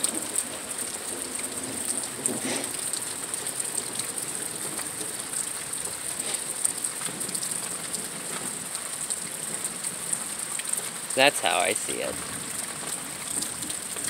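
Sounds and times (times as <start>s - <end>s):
continuous high hiss: 11.2s - 12.5s.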